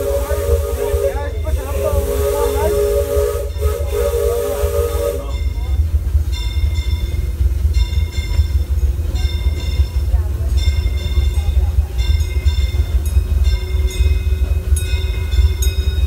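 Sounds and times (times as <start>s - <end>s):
steam locomotive whistle: 0.0s - 5.5s
train rumbling: 0.0s - 16.0s.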